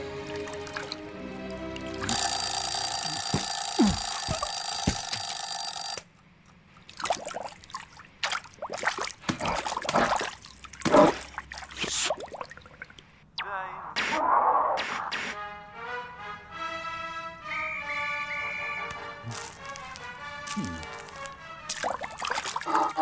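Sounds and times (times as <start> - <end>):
cartoon clicks and squelches: 2.1 - 6.0
loud bell ringing: 2.1 - 6.0.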